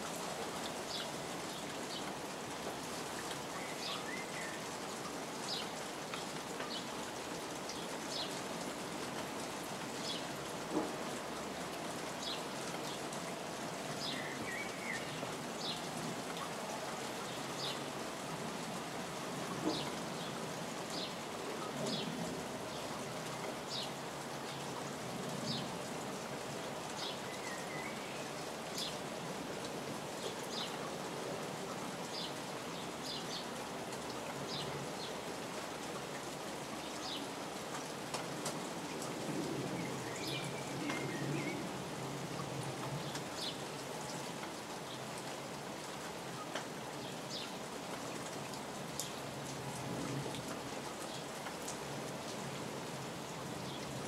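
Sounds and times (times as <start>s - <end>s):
rain on plastic tarpaulin: 0.0s - 54.0s.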